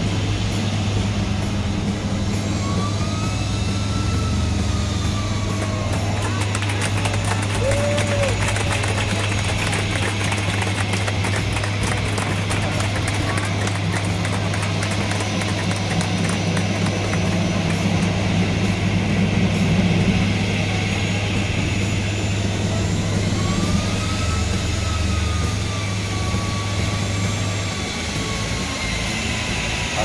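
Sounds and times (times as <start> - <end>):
faint whine: 0.0 - 30.0
jet engines droning: 0.0 - 30.0
low hum: 0.0 - 30.0.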